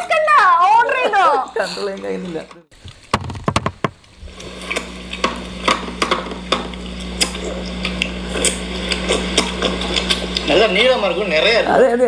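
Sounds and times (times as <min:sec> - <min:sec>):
bones clicking and knocking: 0:02.8 - 0:04.2
steady low hum: 0:04.1 - 0:11.8.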